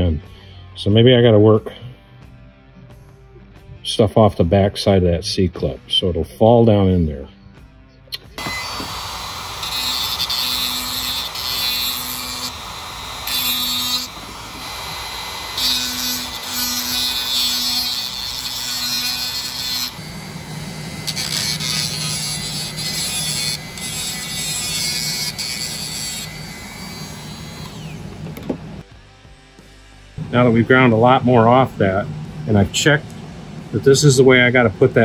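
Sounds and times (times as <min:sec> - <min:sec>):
rotary tool grinding metal: 0:08.3 - 0:28.3.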